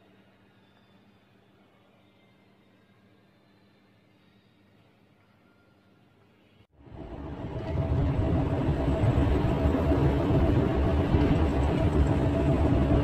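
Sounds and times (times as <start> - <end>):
car engine and road noise: 6.8 - 13.0.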